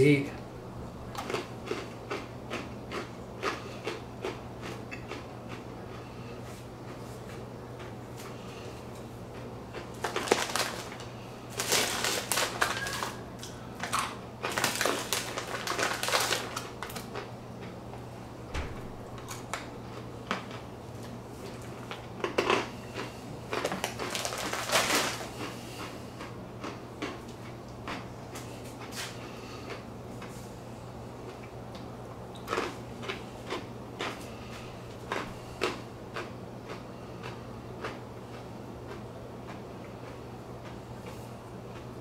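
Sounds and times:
hand rummaging through pretzels: 9.7 - 17.2, 22.2 - 26.0
foil snack bag rustling: 9.8 - 17.2, 20.3 - 26.0.

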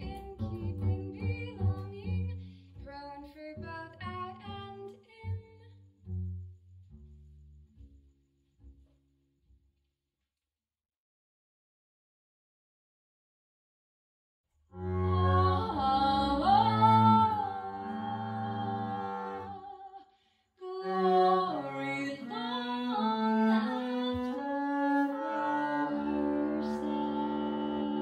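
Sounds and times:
bowed double bass: 0.0 - 9.6, 14.7 - 19.8, 20.7 - 28.0
woman singing gliding notes: 14.9 - 20.0, 20.6 - 28.0.

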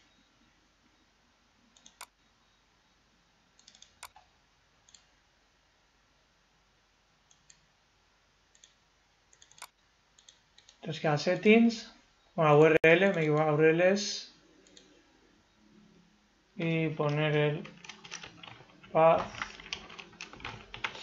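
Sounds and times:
computer mouse clicks: 1.7 - 2.2, 3.6 - 4.3, 4.9 - 5.1, 7.3 - 7.7, 8.5 - 10.8, 14.6 - 15.0.

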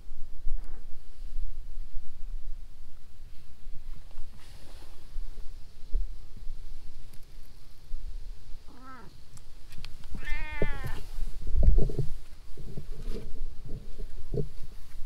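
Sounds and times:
cat meowing: 8.7 - 9.1, 10.1 - 11.1.

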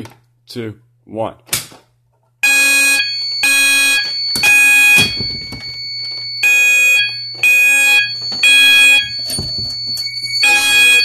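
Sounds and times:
fire alarm horns blasting: 2.4 - 11.0
steady high tone: 2.4 - 11.0.

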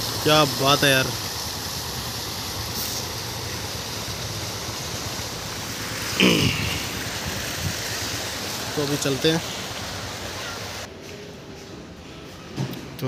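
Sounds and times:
fountain water rushing: 0.0 - 10.9
man's short vocal sound: 6.1 - 7.0.

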